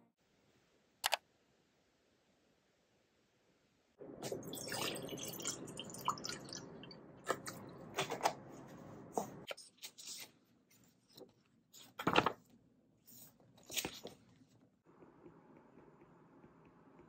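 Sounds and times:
water pouring into glass mug: 4.2 - 7.6.

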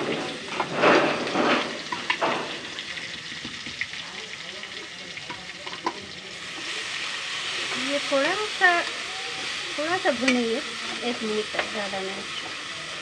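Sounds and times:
garlic sizzling in hot oil: 0.0 - 13.0.

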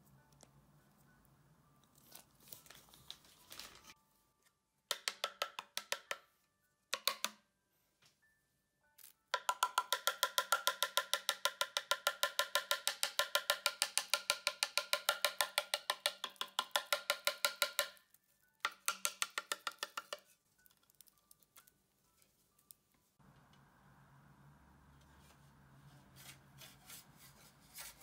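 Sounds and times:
rapid tapping on plastic mould: 9.4 - 18.0.

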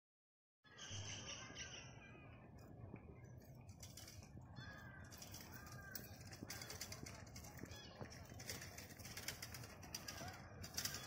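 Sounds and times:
faint birds calling: 0.6 - 11.0.

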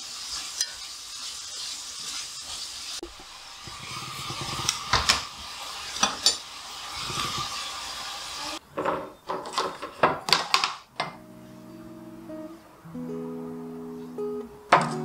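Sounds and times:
food sizzling in a pan: 0.0 - 8.6
kitchen utensils clacking: 3.7 - 7.6, 8.7 - 11.2.

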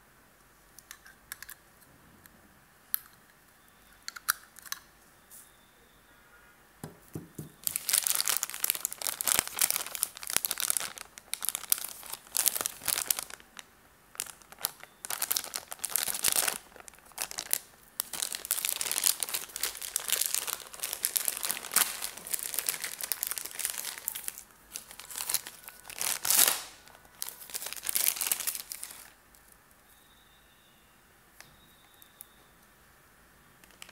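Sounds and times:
plastic bag crinkling: 7.4 - 29.5.

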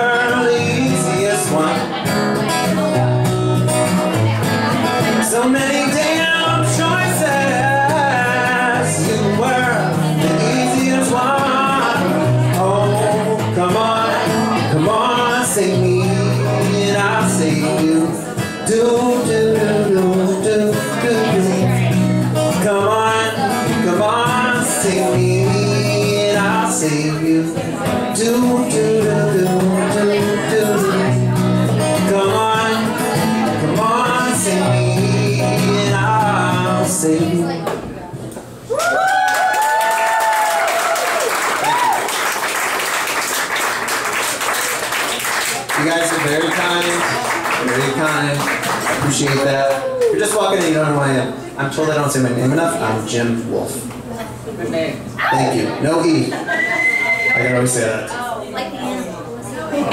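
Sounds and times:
man singing: 0.0 - 37.8
strummed acoustic guitar: 0.0 - 38.2, 44.8 - 53.7.

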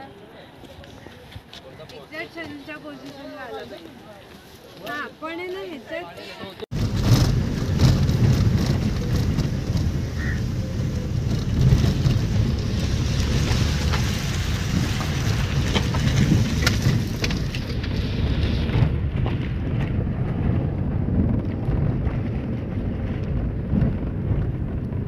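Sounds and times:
vehicle road rumble: 6.6 - 25.0
wind buffeting microphone: 6.7 - 25.0.

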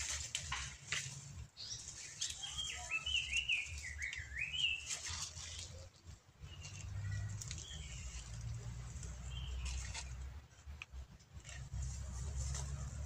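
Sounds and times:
bird singing warbling notes: 1.6 - 4.9.

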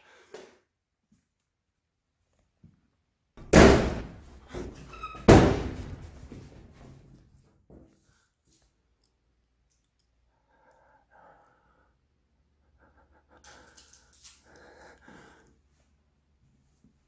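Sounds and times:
faint breaths: 10.2 - 16.0.

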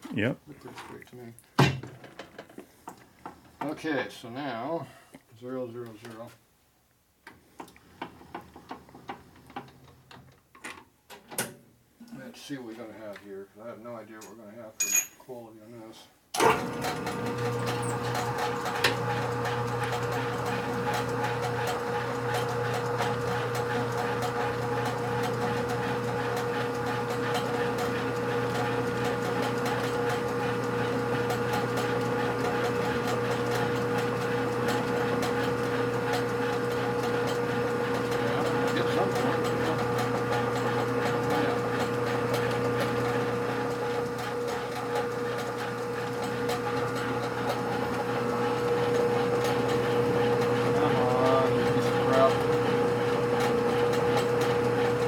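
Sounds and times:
person speaking: 0.0 - 1.4, 38.2 - 39.9, 50.7 - 52.5
metal lathe humming: 16.4 - 55.0.

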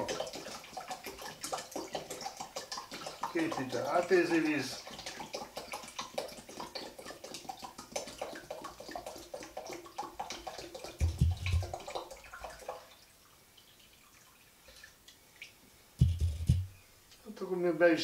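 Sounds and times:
water pouring into a metal pot: 0.0 - 15.6
low thump: 11.0 - 11.7.

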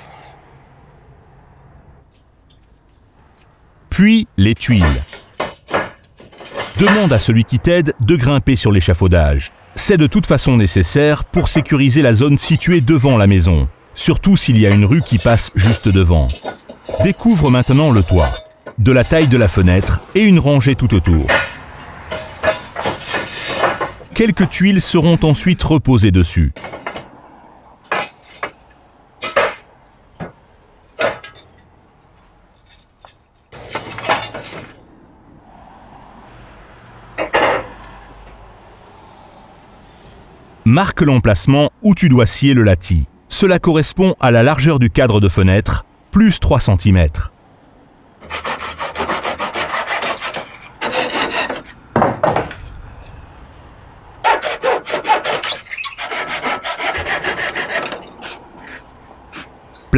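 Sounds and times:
clay roof tiles clinking: 4.5 - 7.6, 11.4 - 25.4, 27.8 - 34.8, 49.2 - 52.7
handsaw cutting wood: 48.2 - 51.8, 54.2 - 59.5.

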